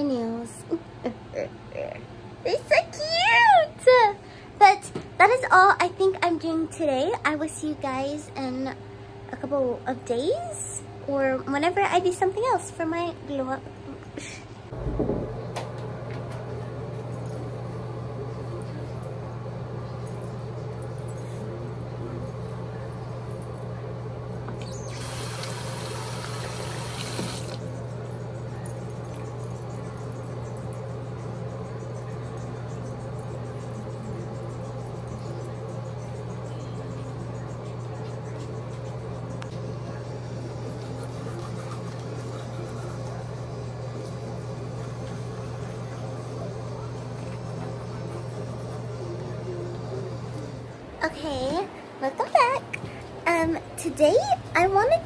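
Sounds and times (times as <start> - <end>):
low steady hum: 0.0 - 55.0
teeth being brushed: 40.6 - 43.2.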